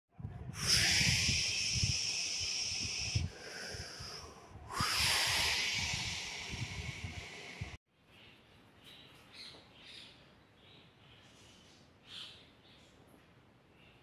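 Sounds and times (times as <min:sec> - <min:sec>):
hissing whooshes: 0:00.5 - 0:07.8.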